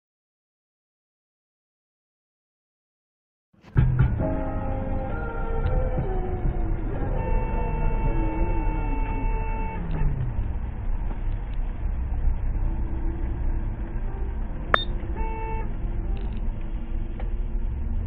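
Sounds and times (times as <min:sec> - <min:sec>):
car driving rumble: 0:03.6 - 0:18.0
car horn honking: 0:07.1 - 0:10.2, 0:14.8 - 0:15.8.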